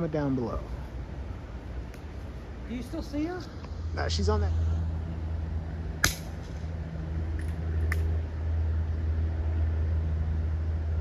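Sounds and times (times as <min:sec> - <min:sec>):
steady low hum: 0:00.0 - 0:11.0
air rifle shot: 0:06.0 - 0:06.6.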